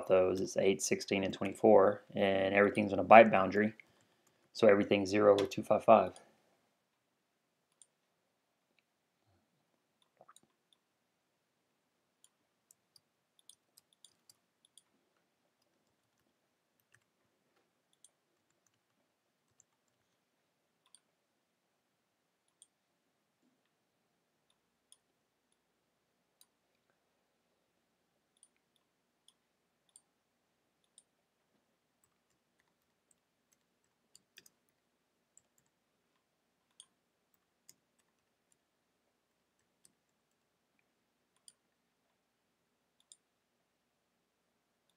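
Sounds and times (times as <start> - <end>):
computer mouse clicks: 7.7 - 8.0, 12.2 - 15.0, 15.6 - 20.2, 20.8 - 21.1, 22.4 - 22.8, 28.3 - 30.1, 30.8 - 31.2, 32.0 - 38.7, 39.6 - 40.5, 41.3 - 42.2, 43.0 - 43.3.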